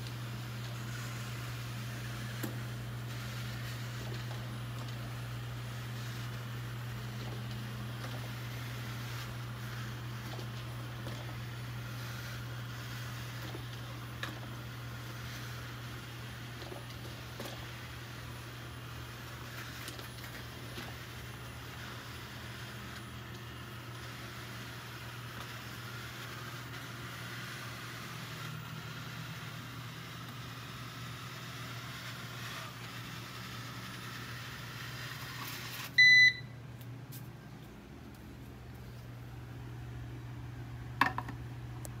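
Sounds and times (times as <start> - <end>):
robot vacuum whirring: 0.0 - 36.2
robot vacuum beep: 35.7 - 36.5.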